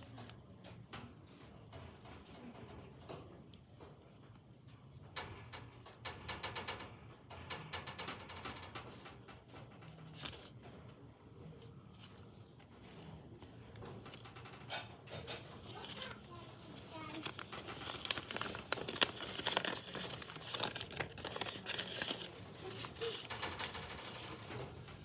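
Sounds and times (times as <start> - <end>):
paper rustling and crinkling: 10.1 - 10.6, 15.6 - 25.0.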